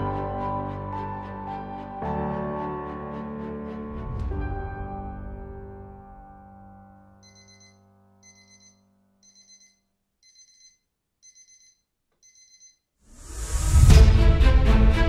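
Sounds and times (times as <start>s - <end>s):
music track: 13.3s - 15.0s.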